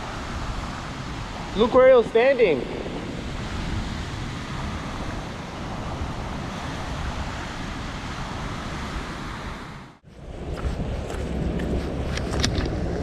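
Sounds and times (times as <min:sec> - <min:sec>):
ocean swell washing over rocks: 0:00.0 - 0:10.0
wind rumbling on microphone: 0:00.0 - 0:13.0.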